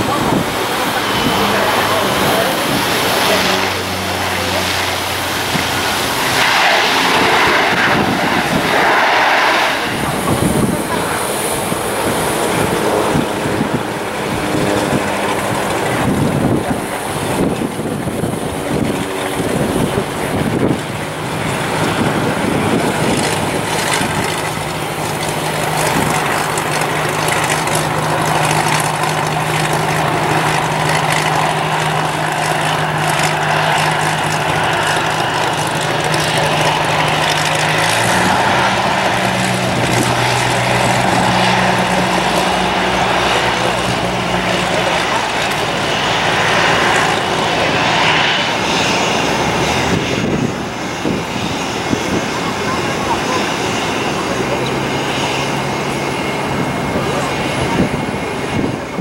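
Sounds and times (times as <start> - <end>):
propeller plane engines droning: 0.0 - 59.0.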